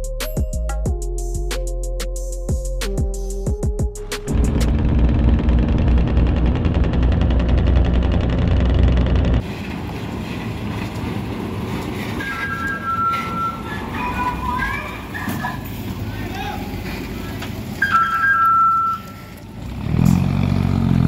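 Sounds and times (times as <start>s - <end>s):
loud open-piped diesel engine: 4.0s - 17.8s, 19.2s - 21.0s
rough truck diesel engine: 4.0s - 18.0s, 19.1s - 21.0s.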